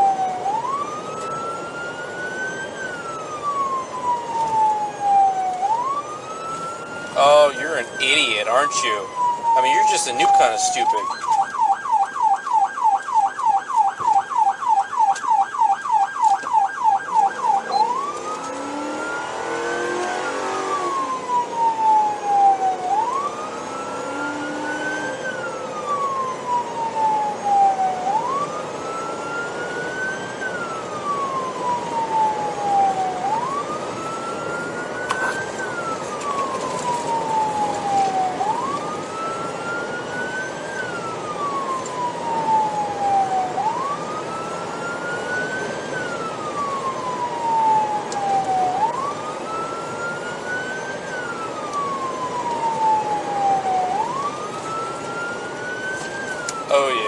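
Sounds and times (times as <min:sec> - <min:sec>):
police siren yelp and wail: 0:00.0 - 0:57.0.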